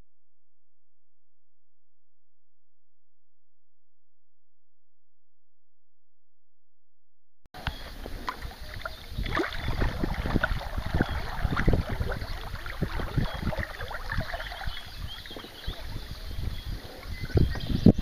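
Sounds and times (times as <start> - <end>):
paddle splashes: 7.6 - 17.3.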